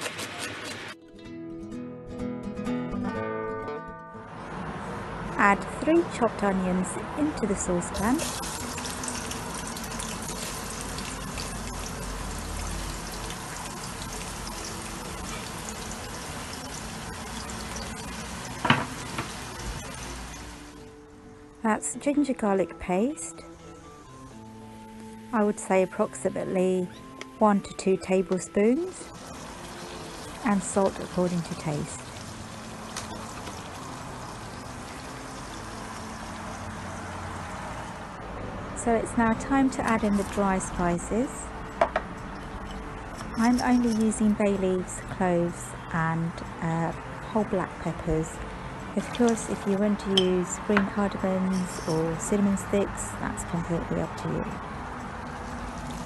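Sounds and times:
onions sizzling in oil: 7.8 - 20.8, 28.7 - 37.6.

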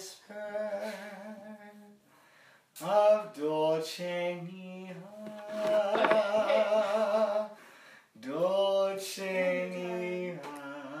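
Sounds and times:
person singing unaccompanied: 2.8 - 7.6, 8.2 - 11.0.

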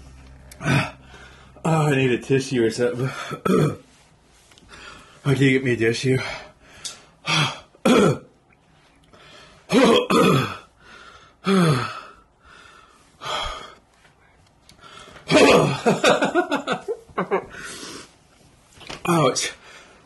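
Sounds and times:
man groaning in pain: 0.6 - 1.0, 11.4 - 12.0, 15.3 - 16.0
man breathing hard: 10.7 - 13.9, 17.5 - 18.1.

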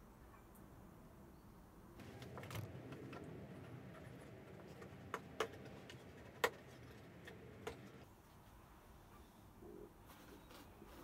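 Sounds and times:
wood rubbing and shuffling: 2.0 - 8.0.

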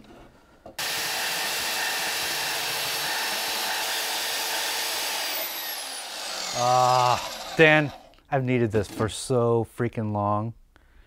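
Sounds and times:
band saw cutting steel: 0.8 - 8.2.

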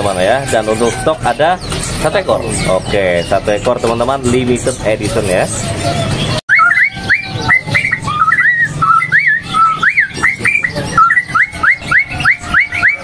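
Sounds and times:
bulbul singing whistled notes: 6.0 - 13.0.

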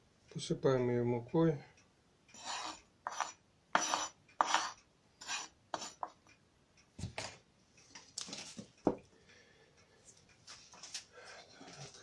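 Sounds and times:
spoon scraping wooden board: 2.3 - 6.2.

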